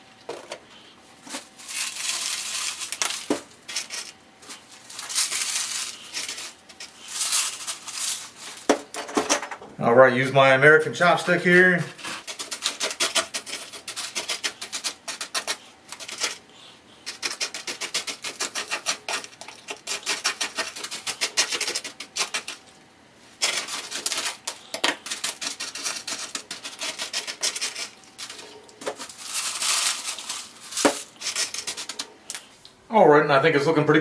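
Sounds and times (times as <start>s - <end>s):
chopstick rattling gritty soil: 11.0s - 16.4s.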